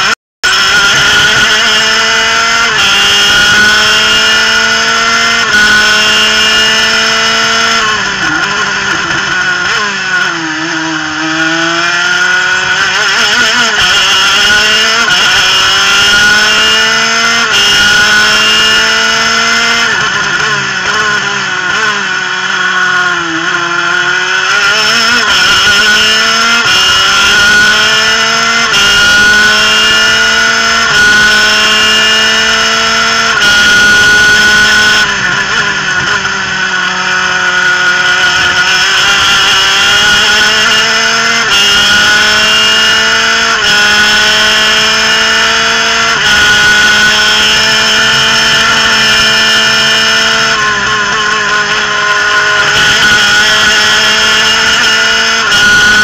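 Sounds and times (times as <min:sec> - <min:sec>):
two-stroke kart engine revving: 0:00.0 - 0:56.0.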